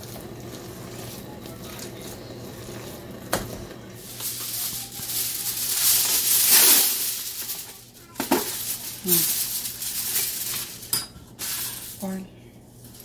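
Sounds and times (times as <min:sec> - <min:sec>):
charcoal sizzling hiss: 0:00.0 - 0:13.0.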